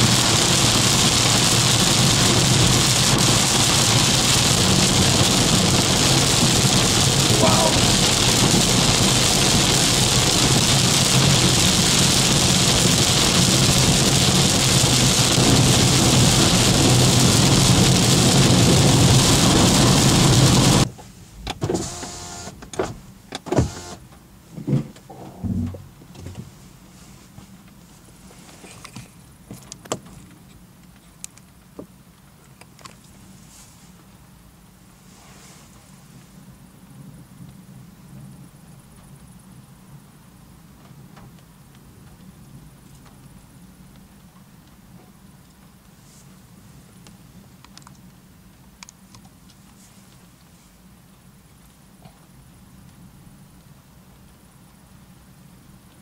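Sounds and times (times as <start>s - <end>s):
car engine hum: 0.0s - 26.6s
road and tyre noise: 0.0s - 56.0s
faint knocks and clunks: 24.5s - 26.6s.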